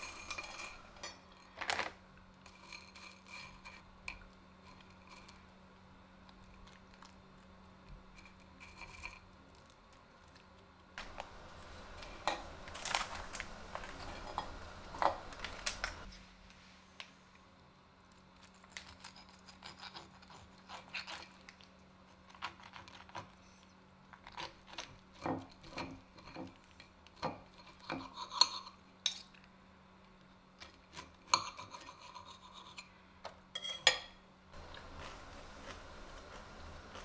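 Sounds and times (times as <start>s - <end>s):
cutlery scraping ceramic plate: 0.0s - 1.5s, 30.9s - 32.9s, 33.6s - 34.2s.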